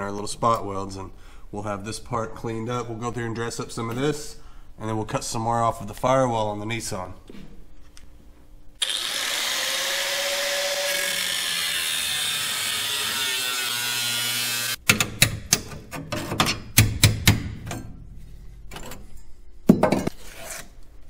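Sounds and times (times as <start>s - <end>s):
power tool cutting sheet metal: 8.8s - 14.8s.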